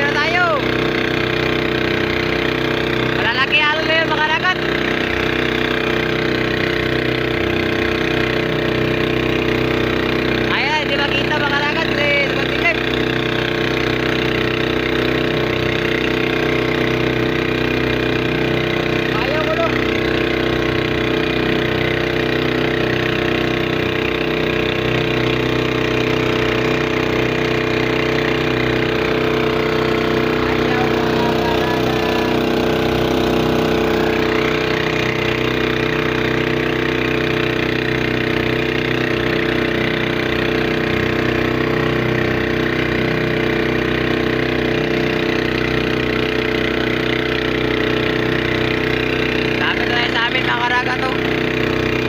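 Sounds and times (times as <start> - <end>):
boat engine running: 0.0 - 52.0.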